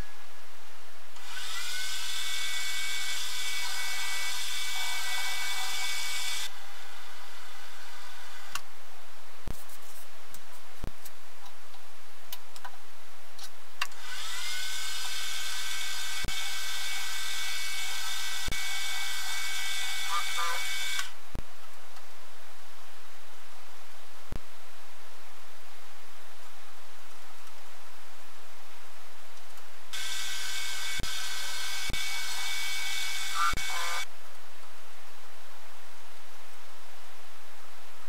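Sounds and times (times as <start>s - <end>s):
milling machine spindle whine: 14.0s - 21.1s, 30.0s - 34.0s.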